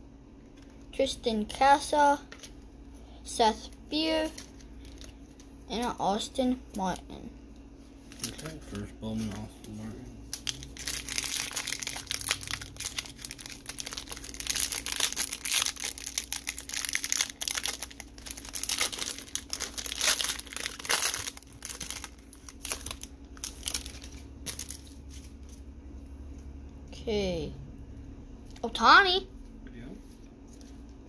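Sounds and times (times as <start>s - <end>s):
wrapper crinkling and tearing: 4.2s - 5.5s, 8.1s - 25.3s.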